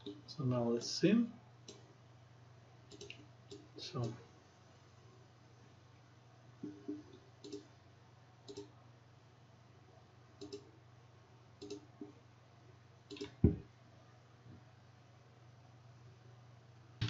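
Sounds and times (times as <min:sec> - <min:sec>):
low steady hum: 0:00.0 - 0:17.0
computer mouse clicks: 0:02.9 - 0:04.2, 0:06.6 - 0:07.7, 0:08.5 - 0:08.7, 0:10.4 - 0:10.7, 0:11.6 - 0:12.1, 0:13.1 - 0:13.4.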